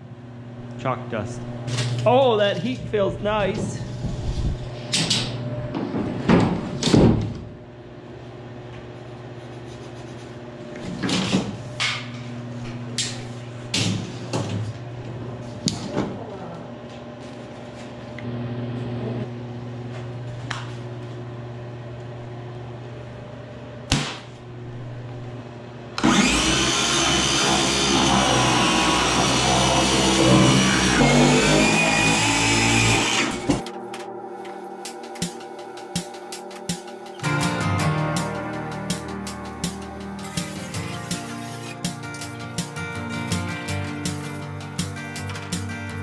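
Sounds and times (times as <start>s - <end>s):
low electrical hum: 0.0s - 26.0s.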